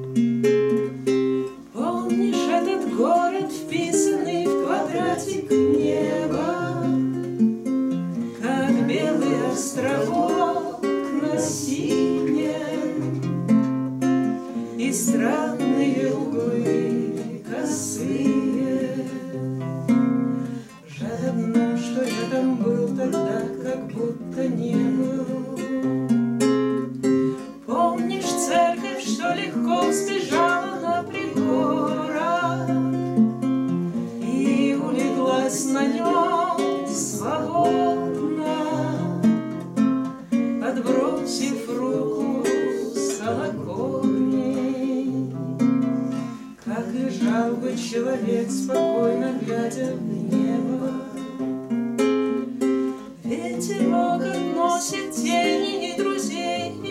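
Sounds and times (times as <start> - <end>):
classical guitars playing: 0.0 - 56.9
woman singing: 1.5 - 7.7, 8.4 - 13.6, 14.2 - 19.7, 20.6 - 26.1, 27.3 - 51.6, 53.1 - 56.9.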